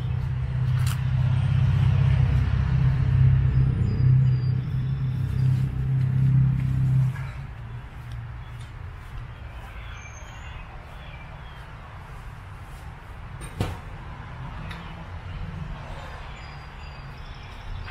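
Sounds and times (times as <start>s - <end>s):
low rumble: 0.0s - 8.0s.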